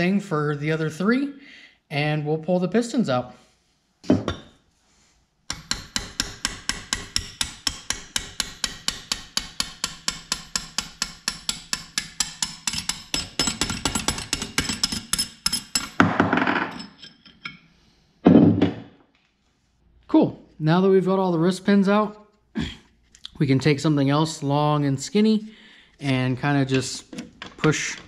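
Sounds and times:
hammer tapping on metal: 5.5s - 16.0s.

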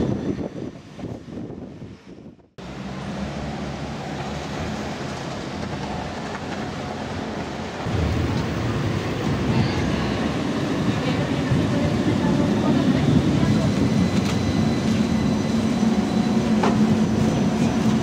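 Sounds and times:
city street noise: 0.0s - 18.0s
passing tram: 0.0s - 18.0s
low rumble: 7.8s - 11.8s.

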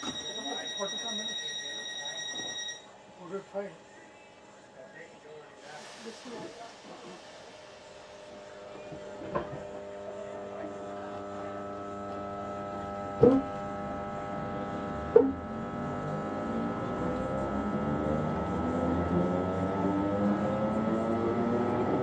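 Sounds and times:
rising train whine: 0.0s - 3.0s, 15.5s - 22.0s
electric train motor hum: 5.7s - 22.0s.

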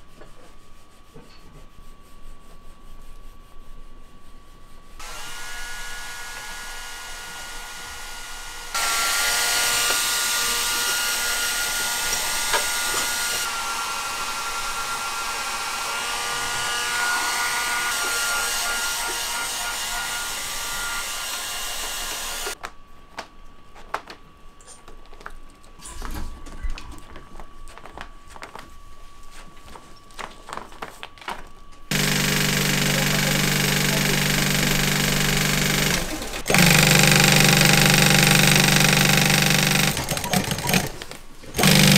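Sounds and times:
sewing machine motor humming: 21.3s - 22.6s, 31.9s - 41.9s.

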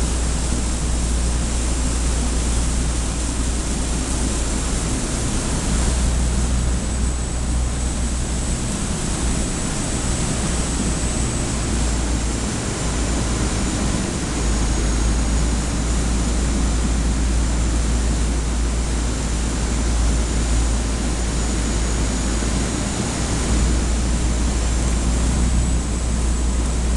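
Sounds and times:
deep engine rumble: 0.0s - 26.9s
water rushing along a hull: 0.0s - 26.9s.

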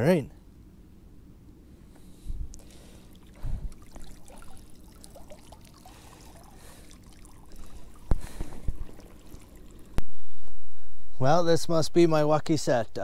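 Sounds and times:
water splashing and trickling: 2.5s - 10.0s.

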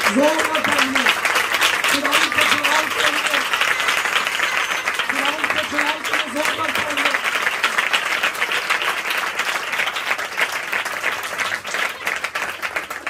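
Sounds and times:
people clapping: 0.0s - 13.0s.

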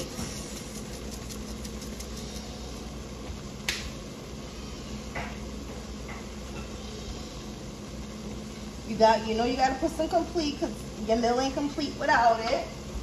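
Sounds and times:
spice shaker shaking: 0.0s - 2.6s
steady low hum: 0.0s - 13.0s.

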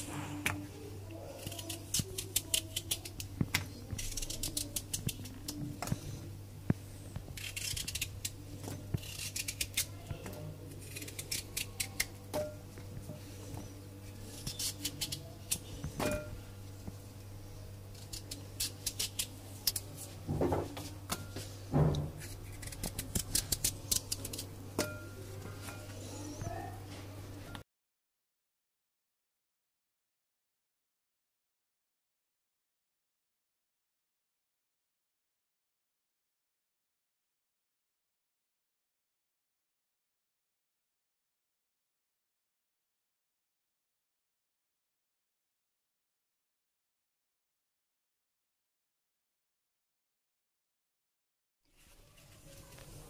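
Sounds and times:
knife slicing potato: 1.4s - 6.0s, 7.2s - 10.0s, 10.8s - 12.6s, 14.2s - 16.4s, 17.9s - 19.9s, 22.0s - 25.0s.

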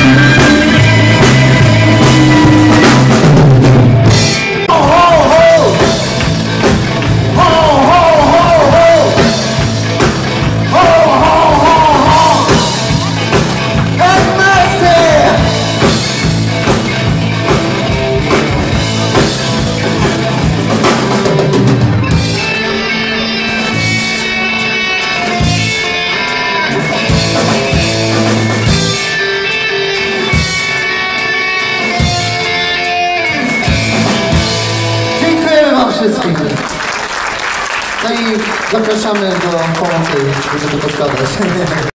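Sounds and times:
drum kit beat: 0.0s - 35.5s
electric guitars: 0.0s - 41.9s
person singing: 4.7s - 6.2s, 7.3s - 9.4s, 10.7s - 13.2s, 14.0s - 15.6s.

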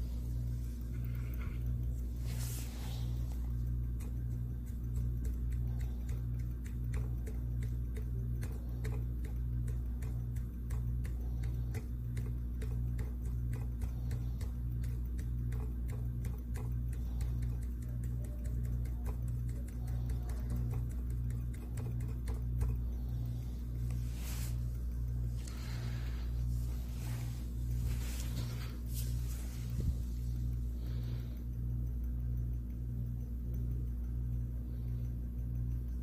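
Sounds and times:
faint rapid ticking: 0.0s - 36.0s
low throbbing machine hum: 0.0s - 36.0s.

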